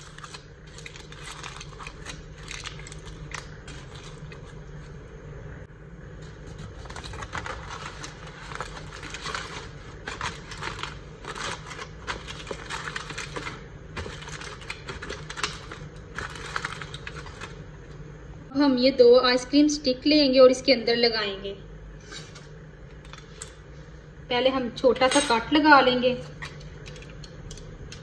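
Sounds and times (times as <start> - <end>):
aluminium foil crinkling: 0.0 - 5.0, 6.3 - 17.7
steady low hum: 0.0 - 28.0.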